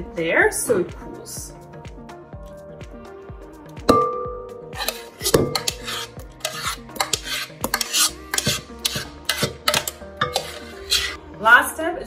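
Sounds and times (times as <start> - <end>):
spoon scraping metal pot: 4.7 - 11.2.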